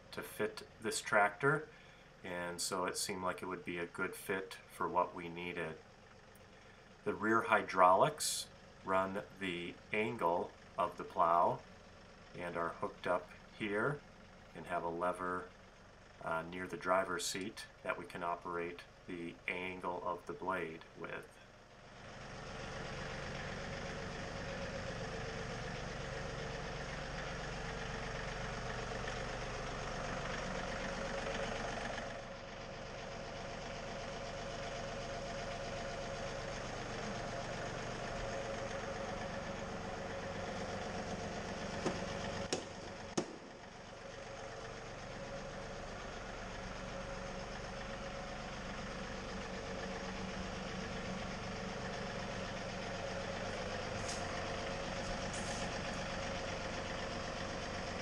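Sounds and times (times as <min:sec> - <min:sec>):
tractor engine running: 0:00.0 - 0:58.0
sharp clicks: 0:41.9 - 0:43.5.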